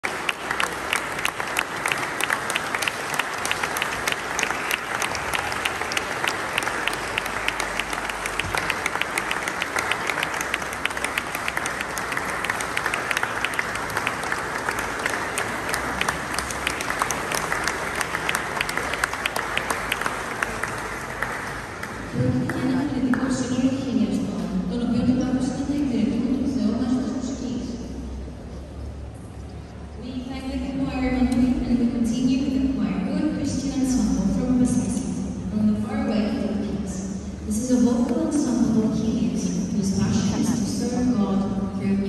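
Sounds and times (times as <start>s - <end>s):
audience applauding: 0.0s - 22.7s.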